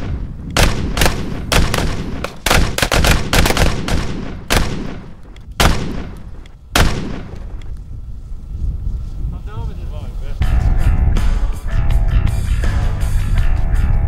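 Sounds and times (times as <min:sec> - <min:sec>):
handgun shots echoing: 0:00.0 - 0:07.5.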